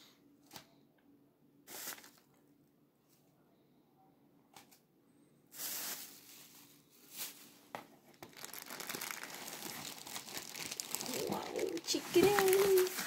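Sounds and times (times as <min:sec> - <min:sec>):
plastic packaging crinkling: 0:01.7 - 0:02.3, 0:05.6 - 0:13.0.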